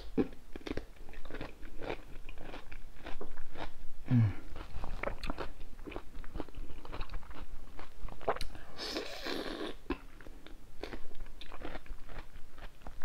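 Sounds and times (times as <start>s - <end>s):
crunching and chewing: 0.2s - 3.8s, 4.4s - 13.0s
person humming briefly: 4.1s - 4.5s.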